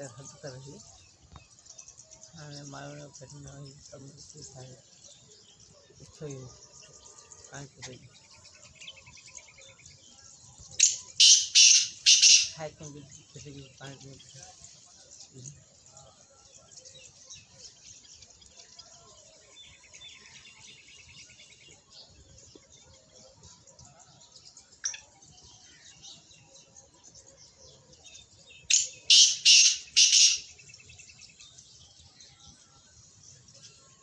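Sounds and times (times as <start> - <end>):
babblers chattering: 0.0 - 1.0, 10.8 - 14.6, 28.7 - 30.6
rattling bird trill: 10.8 - 14.0, 28.7 - 30.7
loud harsh bird calls: 10.8 - 18.3, 19.0 - 34.0.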